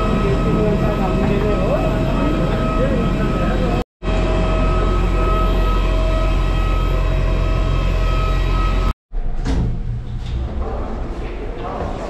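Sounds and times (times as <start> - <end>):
constant high whine: 0.0 - 8.9.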